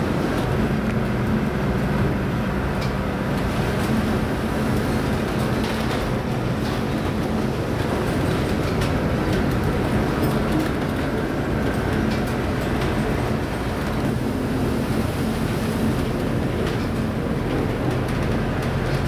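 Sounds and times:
heavy sea against hull: 0.0 - 19.0
ship engine hum: 0.0 - 19.0
wind: 0.0 - 19.0.

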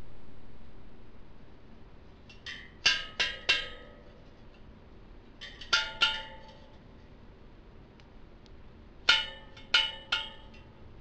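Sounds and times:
bicycle spokes pinging: 2.2 - 4.7, 5.4 - 6.9, 9.0 - 10.8.

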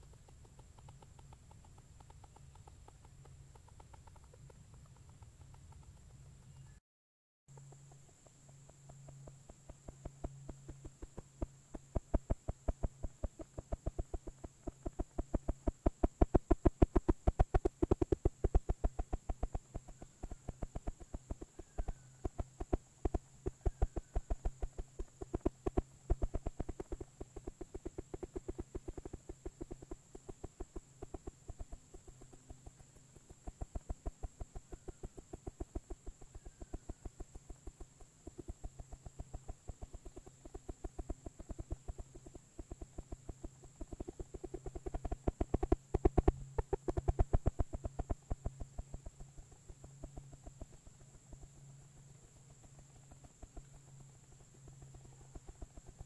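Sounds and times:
faint steady hum: 0.0 - 6.8, 7.5 - 56.0
rapid knocking: 7.6 - 36.2.

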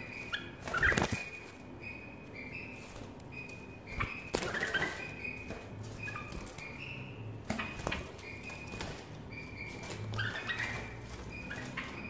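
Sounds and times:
young birds chirping: 0.0 - 12.0
wing flutters: 0.2 - 1.7.

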